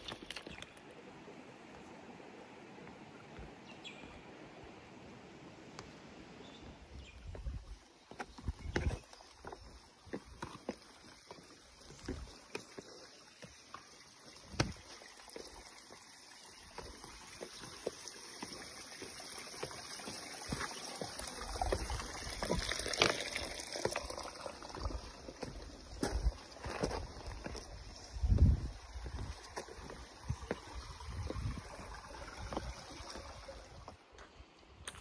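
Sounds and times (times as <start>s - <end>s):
water sloshing and splashing: 10.1s - 34.0s.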